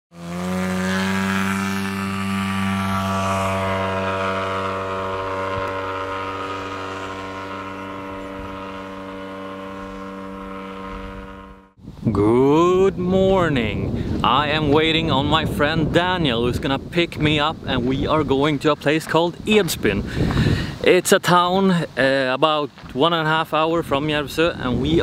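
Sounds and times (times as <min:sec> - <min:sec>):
model plane propeller engine: 0:00.1 - 0:11.8.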